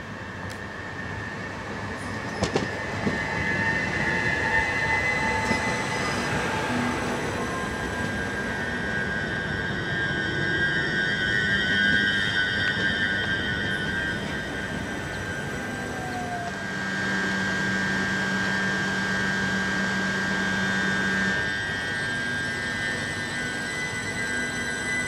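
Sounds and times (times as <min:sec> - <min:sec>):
electric train whining and squealing: 0:00.0 - 0:25.0.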